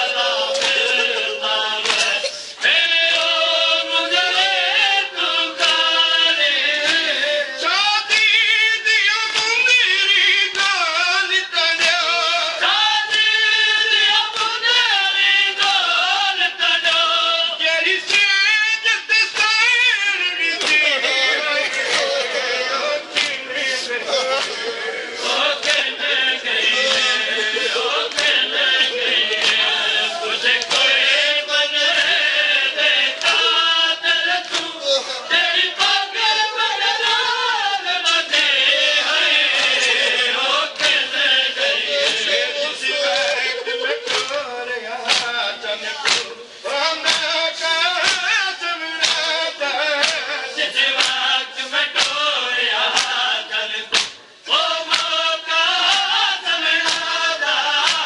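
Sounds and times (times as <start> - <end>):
men chanting in chorus: 0.0 - 58.0
sharp slapping beats: 0.5 - 1.0, 1.8 - 3.4, 6.7 - 7.2, 9.3 - 9.8, 18.0 - 18.5, 23.1 - 24.7, 25.3 - 29.8, 30.4 - 32.2, 34.0 - 34.8, 39.3 - 41.4, 42.0 - 42.4, 44.0 - 46.4, 47.0 - 58.0.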